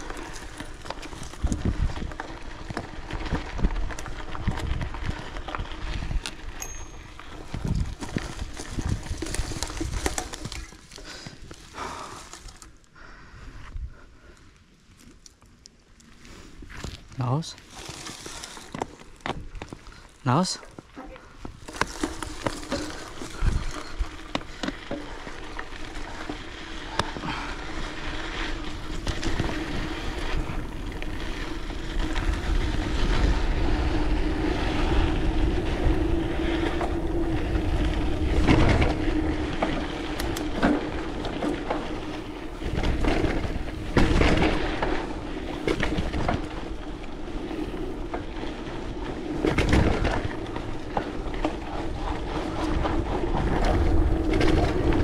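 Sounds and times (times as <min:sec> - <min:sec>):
wind gusting on microphone: 0:00.0 - 0:10.8, 0:21.0 - 0:24.4, 0:25.3 - 0:55.0.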